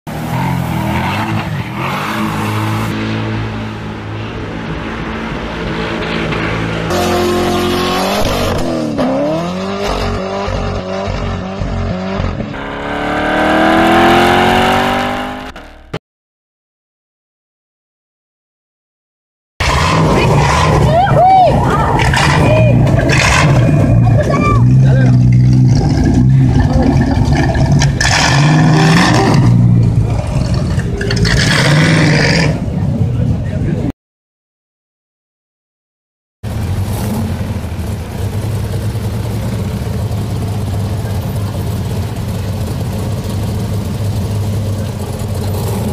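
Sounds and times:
car accelerating: 0.1s - 16.0s, 19.6s - 33.6s, 36.5s - 45.9s
sports car engine revving hard: 6.9s - 16.0s, 24.8s - 32.6s.

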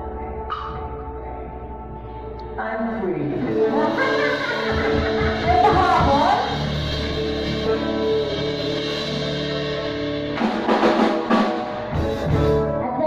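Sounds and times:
held chords over bass: 0.0s - 13.0s
drum hits: 4.0s - 7.8s, 8.4s - 12.7s.

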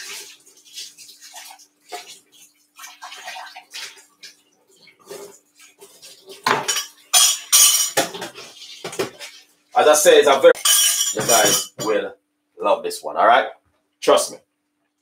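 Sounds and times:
utensils and dishes clinking: 6.2s - 9.3s, 10.6s - 12.0s.

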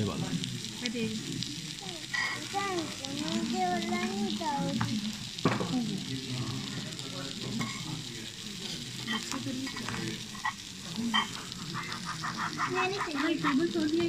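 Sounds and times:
chicken sizzling on hot plates: 0.0s - 14.0s.

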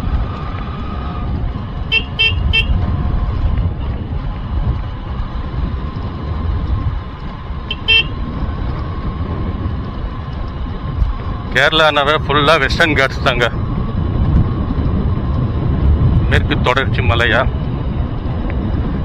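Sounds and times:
motorbike engine rumble: 0.0s - 19.0s
wind on microphone: 0.0s - 19.0s
vehicle horn tooting: 1.9s - 2.8s, 7.7s - 8.2s.

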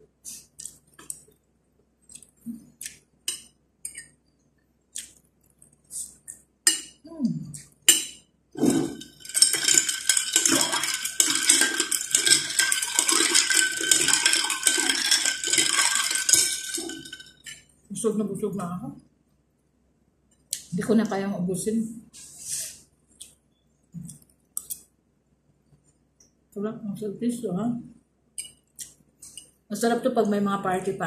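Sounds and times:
spoon stirring ice in a glass: 7.9s - 17.7s.

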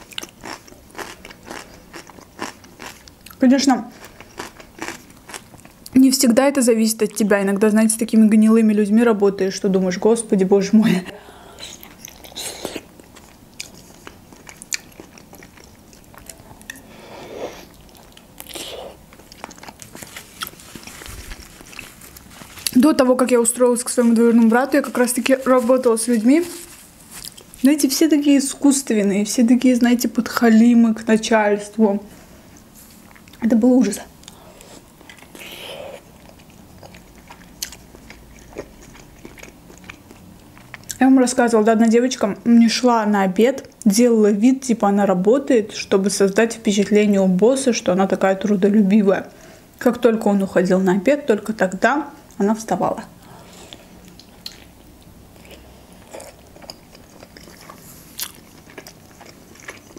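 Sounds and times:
biting and chewing: 0.0s - 3.4s, 4.0s - 5.9s, 11.8s - 16.9s, 17.7s - 22.8s, 34.2s - 41.0s, 54.1s - 59.9s.

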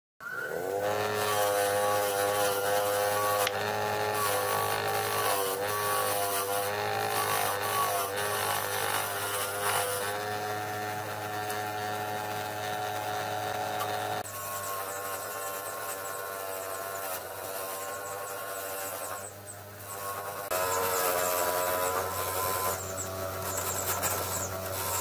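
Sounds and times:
bench grinder motor whine: 0.3s - 25.0s
wire brush scratching metal: 0.7s - 25.0s.

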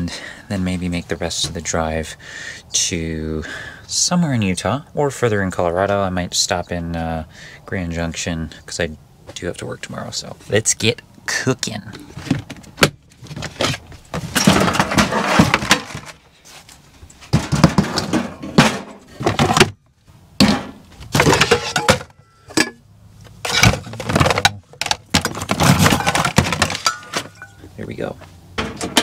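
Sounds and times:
small hard objects knocking: 23.5s - 27.6s.

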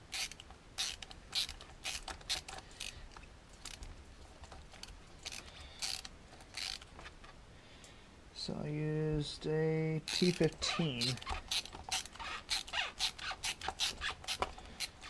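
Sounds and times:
ratcheting screwdriver clicking: 0.1s - 3.0s, 3.6s - 3.9s, 4.6s - 7.1s, 10.1s - 15.0s.

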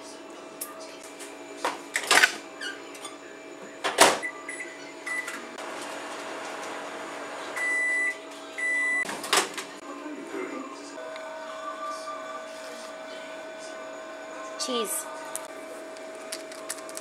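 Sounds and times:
microwave oven humming: 0.0s - 17.0s
long end-of-cycle beeps: 4.2s - 5.4s, 7.6s - 9.1s.

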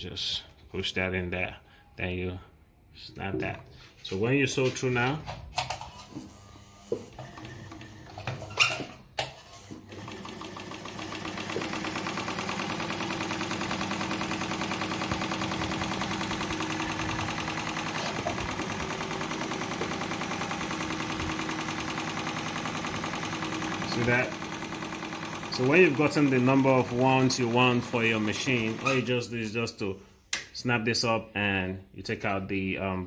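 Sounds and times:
sewing machine running: 5.9s - 8.4s, 9.4s - 29.1s.

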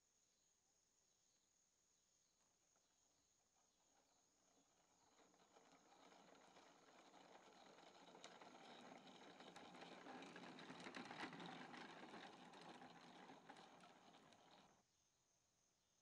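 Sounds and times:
tricycle wheels rattling on pavement: 4.5s - 14.8s.

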